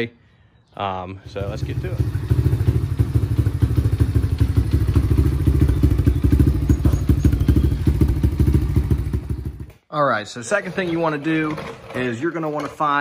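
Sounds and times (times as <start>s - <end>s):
motorbike engine idling: 1.2s - 9.7s.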